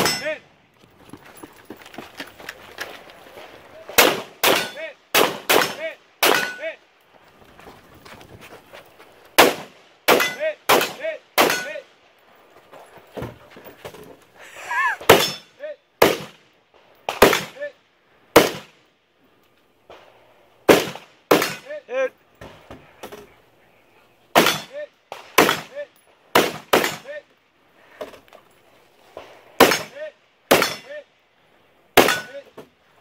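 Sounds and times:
metallic ring of steel targets: 0:00.0 - 0:00.5, 0:04.4 - 0:04.8, 0:06.3 - 0:06.8, 0:10.2 - 0:11.8, 0:15.1 - 0:15.6, 0:30.6 - 0:31.0, 0:32.0 - 0:32.5
rifle shots: 0:03.9 - 0:06.6, 0:09.4 - 0:11.8, 0:16.0 - 0:16.4, 0:17.1 - 0:17.6, 0:18.4 - 0:18.8, 0:20.6 - 0:21.7, 0:24.4 - 0:27.2.

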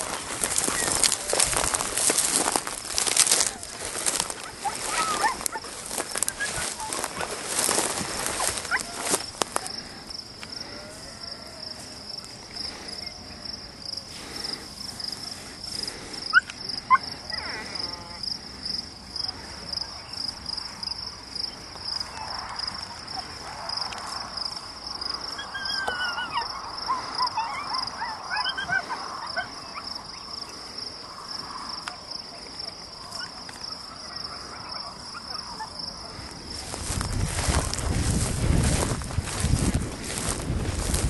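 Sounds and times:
wind buffeting microphone: 0:00.0 - 0:09.5, 0:36.2 - 0:41.0
insects chorus: 0:00.0 - 0:41.0.

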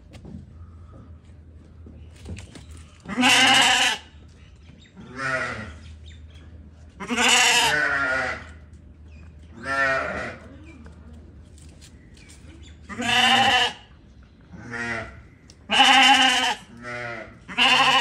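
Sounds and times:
lamb bleating: 0:03.1 - 0:04.1, 0:05.1 - 0:05.8, 0:07.0 - 0:08.5, 0:09.6 - 0:10.4, 0:12.9 - 0:13.9, 0:14.6 - 0:18.0.

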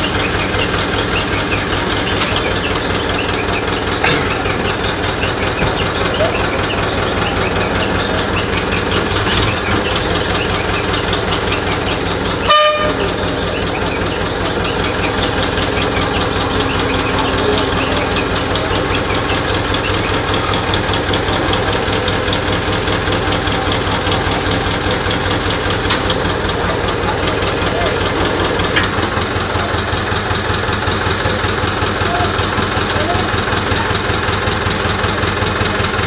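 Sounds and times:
crane engine running: 0:00.0 - 0:36.0
short horn toot: 0:12.4 - 0:13.1.

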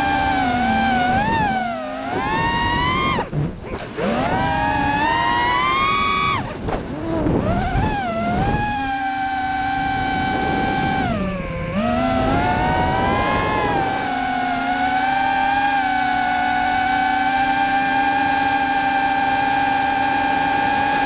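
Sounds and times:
quadcopter motors whining: 0:00.0 - 0:21.0.

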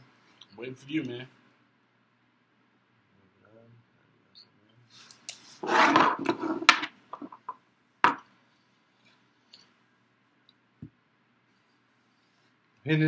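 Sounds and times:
rustling: 0:04.9 - 0:07.5.

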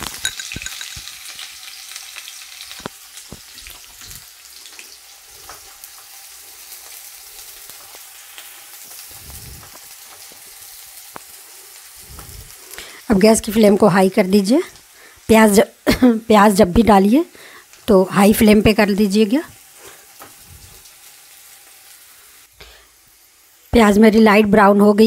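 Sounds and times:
spatula tapping and scraping pan: 0:00.0 - 0:01.4
onion sizzling in hot oil: 0:00.0 - 0:25.0.

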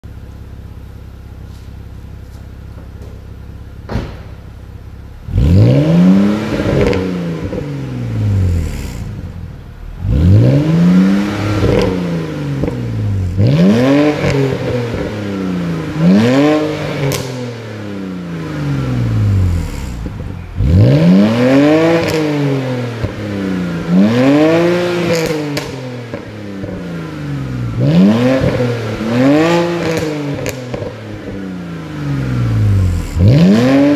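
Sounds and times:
car engine idling and revving: 0:00.0 - 0:33.9
single knock: 0:03.9 - 0:04.4.

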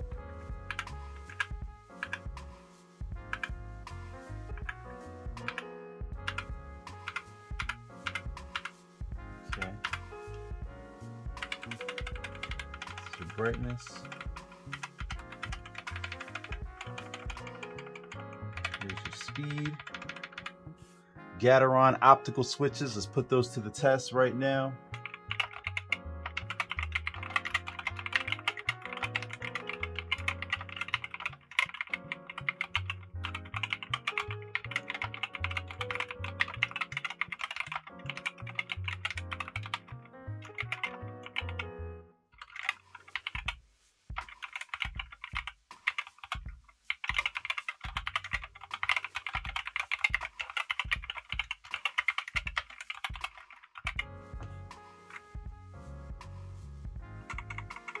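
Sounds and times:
background music: 0:00.0 - 0:58.0
mechanical keyboard typing: 0:00.6 - 0:02.4, 0:03.3 - 0:03.6, 0:04.5 - 0:04.8, 0:05.4 - 0:08.7, 0:09.5 - 0:10.4, 0:11.3 - 0:20.6, 0:25.0 - 0:41.6, 0:42.4 - 0:43.6, 0:44.2 - 0:54.1, 0:57.3 - 0:58.0.

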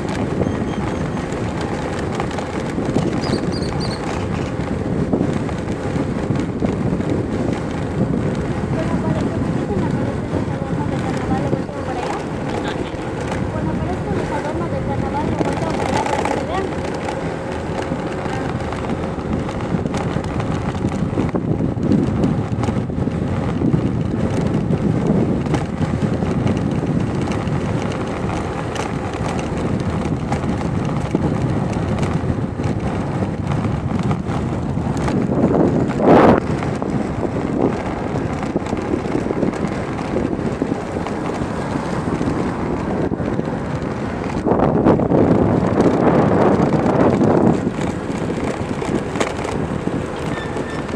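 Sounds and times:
traffic rumble: 0:00.0 - 0:50.9
wind buffeting microphone: 0:00.0 - 0:50.9.

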